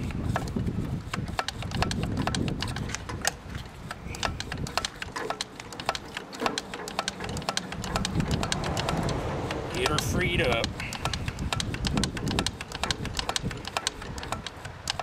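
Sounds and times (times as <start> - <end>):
pliers clicking on metal linkage: 0.4 - 15.0.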